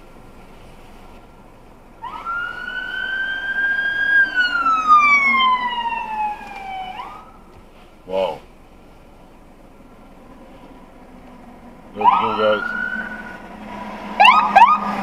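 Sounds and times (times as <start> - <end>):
low road hum: 0.0 - 15.0
fire truck siren wailing: 2.0 - 7.5, 9.9 - 15.0.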